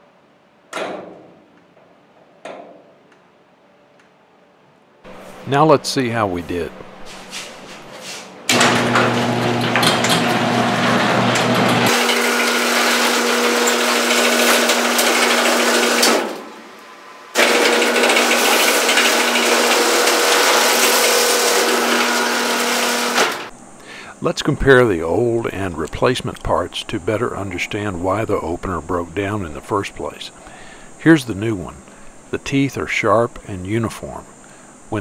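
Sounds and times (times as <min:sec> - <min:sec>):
garage door opener motor humming: 0:08.4 - 0:23.9.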